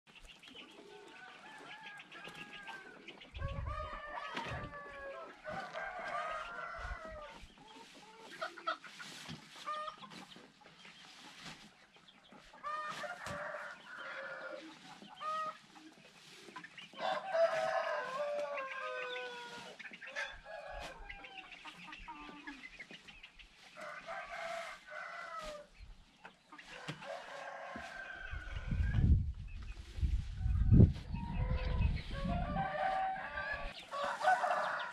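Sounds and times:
hens clucking: 0:00.1 - 0:34.9
roosters crowing: 0:00.8 - 0:07.5, 0:12.6 - 0:15.6, 0:16.9 - 0:21.6, 0:23.8 - 0:25.7, 0:26.6 - 0:29.2, 0:30.2 - 0:34.9.

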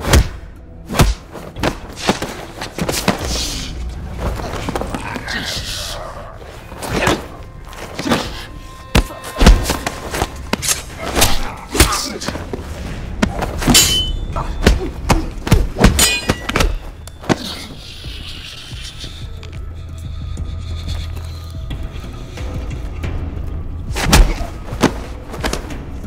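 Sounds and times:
film music score: 0:00.0 - 0:26.0.

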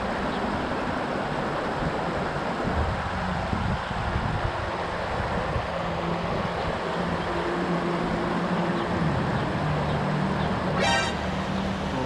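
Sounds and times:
river water rushing over rocks: 0:00.0 - 0:12.0
rising squeak: 0:10.8 - 0:11.3.

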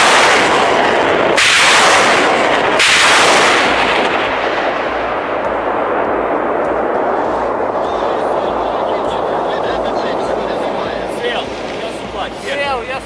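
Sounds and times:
roar of departing rockets: 0:00.0 - 0:12.9
rocket launch blasts: 0:00.0 - 0:12.9.

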